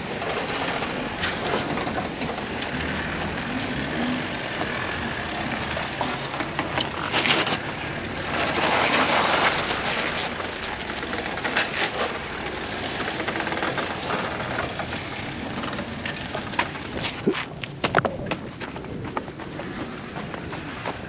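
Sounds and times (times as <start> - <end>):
tyres crunching on rock and gravel: 0.0 - 21.0
vehicle engine running: 0.0 - 21.0.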